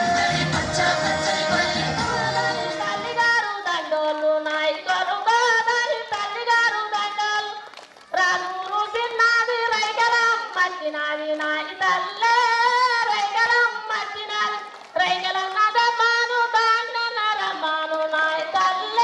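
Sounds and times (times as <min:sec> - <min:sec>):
high voices singing over music: 0:00.0 - 0:03.8.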